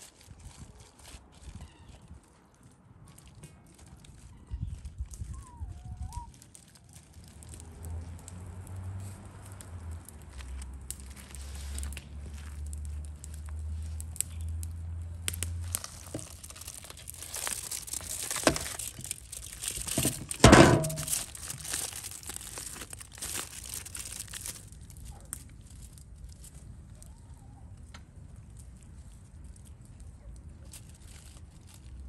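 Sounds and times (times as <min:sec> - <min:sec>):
aluminium foil crinkling: 0:00.0 - 0:32.0
loud thump: 0:20.0 - 0:21.2.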